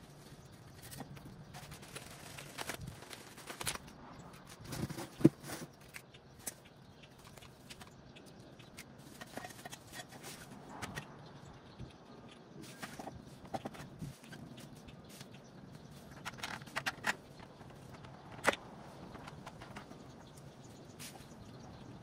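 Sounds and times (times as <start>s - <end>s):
parts clicking and knocking: 0.0s - 21.4s
plastic bag rustling: 0.8s - 5.7s.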